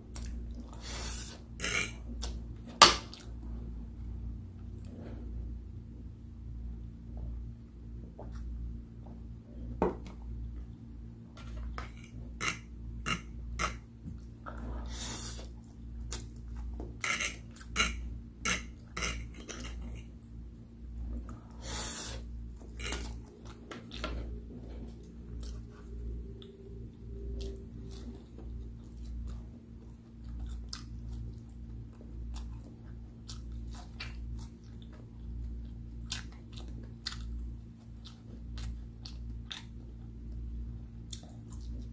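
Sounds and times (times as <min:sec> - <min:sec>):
steady low hum: 0:00.0 - 0:41.9
chewing: 0:22.5 - 0:41.9.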